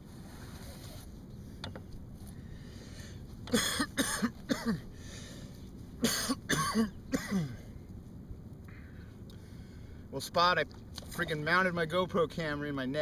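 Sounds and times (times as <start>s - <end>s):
man coughing harshly: 3.5s - 4.8s, 6.0s - 7.6s.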